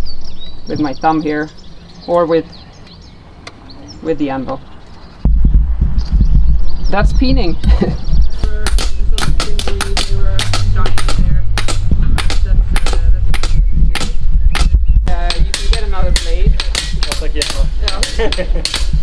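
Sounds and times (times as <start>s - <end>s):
hammers tapping on metal: 8.7s - 19.0s.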